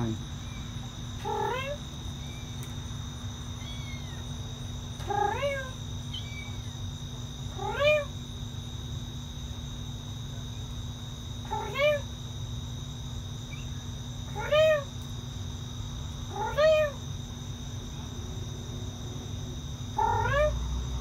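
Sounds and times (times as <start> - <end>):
kitten meowing: 1.2 - 1.8, 3.6 - 4.2, 5.0 - 6.6, 7.6 - 8.1, 11.5 - 12.1, 14.4 - 14.9, 16.3 - 17.0, 20.0 - 20.6.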